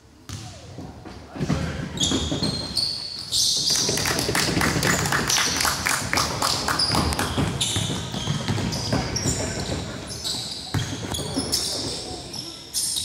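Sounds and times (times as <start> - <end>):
sneaker squeaks: 1.6 - 4.0, 6.8 - 13.0
basketball dribbling: 6.8 - 9.9.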